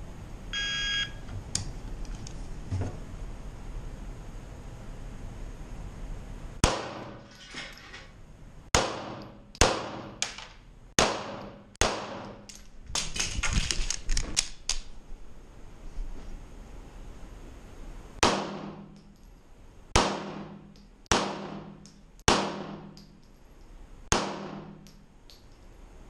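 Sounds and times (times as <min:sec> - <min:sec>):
pistol shots echoing: 0:06.6 - 0:07.2, 0:08.7 - 0:10.4, 0:11.0 - 0:12.4, 0:20.0 - 0:23.0, 0:24.1 - 0:24.9.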